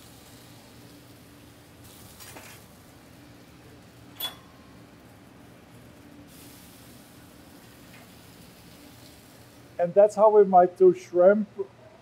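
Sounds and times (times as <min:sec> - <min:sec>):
shrimp sizzling on a griddle: 0:00.0 - 0:04.1, 0:04.7 - 0:09.8
spatula sliding on griddle: 0:01.8 - 0:02.8
metal spatula clink: 0:04.2 - 0:04.7.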